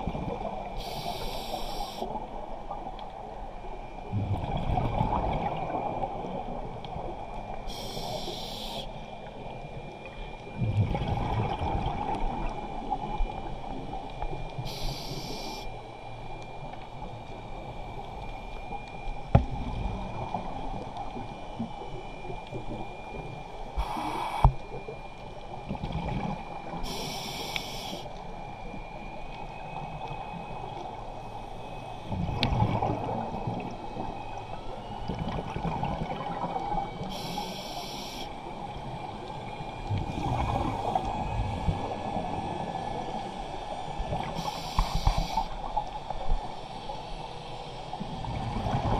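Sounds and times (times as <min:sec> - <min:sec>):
regulator air hiss: 0:00.8 - 0:02.1, 0:07.7 - 0:08.9, 0:14.6 - 0:15.7, 0:23.8 - 0:24.5, 0:26.8 - 0:28.1, 0:37.0 - 0:38.4, 0:44.3 - 0:45.6
faint steady high tone: 0:33.1 - 0:40.0.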